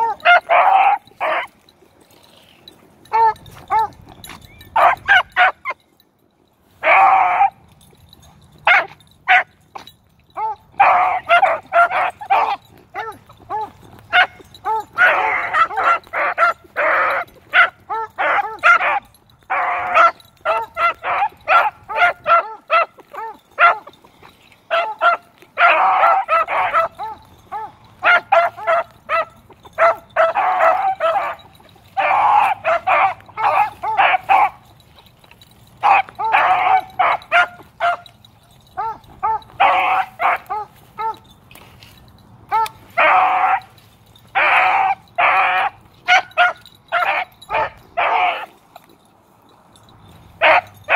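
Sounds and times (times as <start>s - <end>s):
dogs baying and barking: 0.0s - 50.9s.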